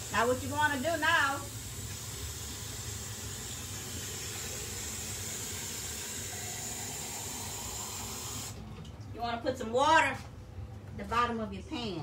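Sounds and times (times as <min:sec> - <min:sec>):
faucet water running: 0:00.0 - 0:08.6.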